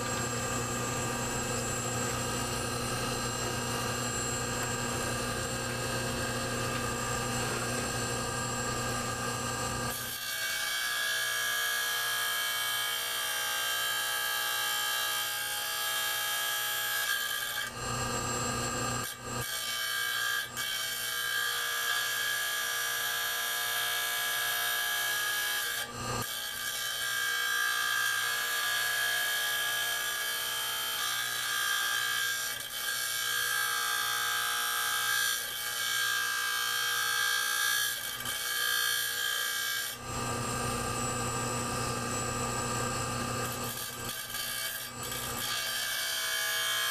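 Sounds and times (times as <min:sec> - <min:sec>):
motor humming: 0:00.0 - 0:09.9
stone grinding whine: 0:00.0 - 0:10.4, 0:16.8 - 0:23.4, 0:24.0 - 0:46.9.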